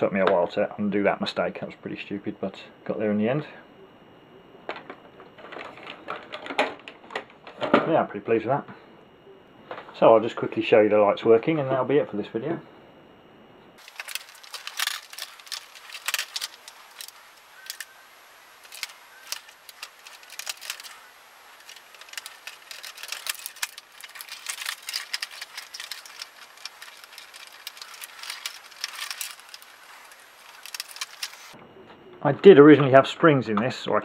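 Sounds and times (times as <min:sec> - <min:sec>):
plastic clicks and rattles: 0:04.7 - 0:07.8, 0:13.8 - 0:17.9, 0:18.6 - 0:21.0, 0:21.6 - 0:31.6.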